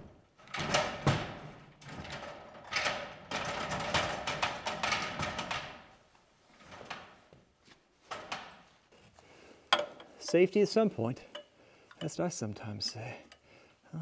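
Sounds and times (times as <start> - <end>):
metal ladder clanking and rattling: 0.4 - 5.9, 8.1 - 8.7, 9.8 - 12.2.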